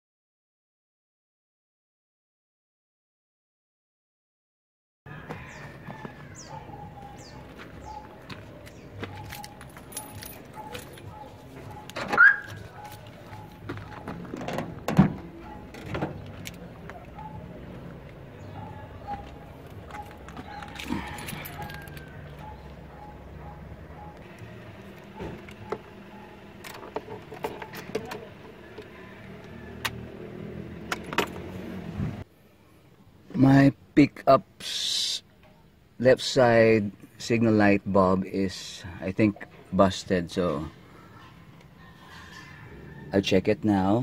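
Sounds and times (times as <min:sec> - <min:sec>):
birds calling: 0:05.1 - 0:30.1
light footsteps: 0:05.2 - 0:15.4
truck door opening: 0:08.7 - 0:17.5, 0:25.0 - 0:28.4
deep door clunk: 0:13.6 - 0:16.3.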